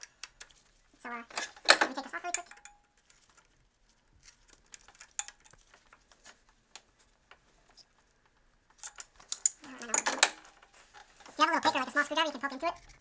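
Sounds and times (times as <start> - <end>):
metallic clicks of tool and bolts: 0.0 - 0.6, 1.3 - 3.3, 4.2 - 5.6, 8.7 - 10.7.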